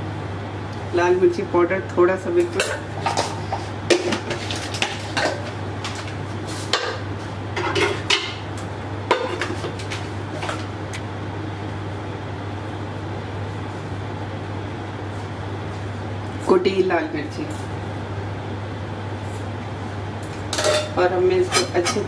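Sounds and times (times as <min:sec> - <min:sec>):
kitchen utensils clinking: 0:20.5 - 0:22.0.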